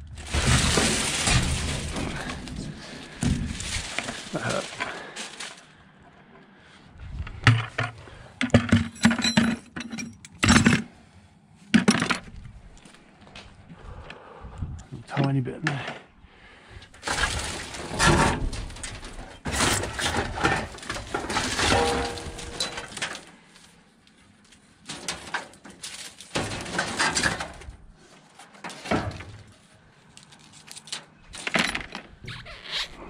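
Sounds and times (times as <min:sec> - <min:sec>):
scrap clattering in a dumpster: 0:00.0 - 0:05.7, 0:16.9 - 0:23.5, 0:24.8 - 0:29.6.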